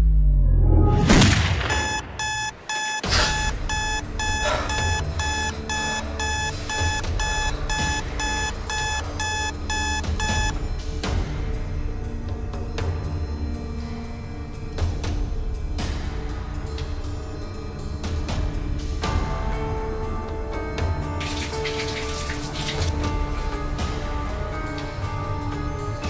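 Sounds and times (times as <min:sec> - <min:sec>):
alarm clock beeping: 0:01.7 - 0:10.6
low dramatic music: 0:03.0 - 0:26.0.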